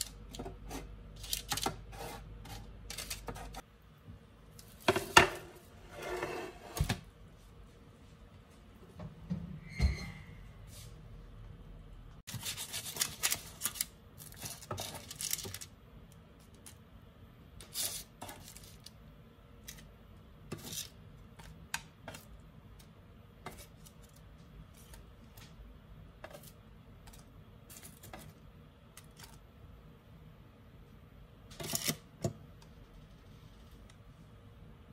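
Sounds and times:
parchment rustling: 0.0 - 3.7, 12.3 - 16.9, 17.6 - 19.0.

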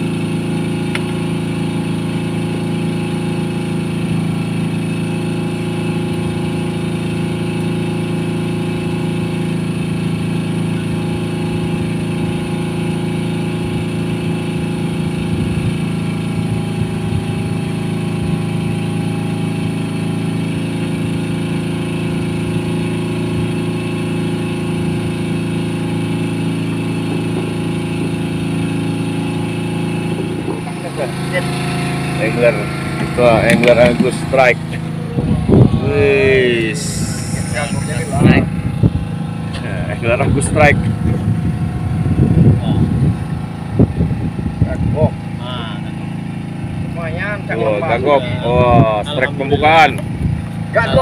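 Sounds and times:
boat engine idling: 0.0 - 51.0.

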